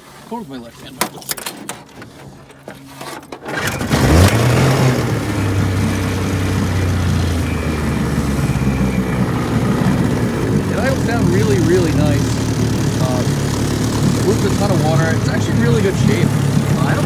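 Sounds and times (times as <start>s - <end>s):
outboard motor revving: 2.1s - 17.0s.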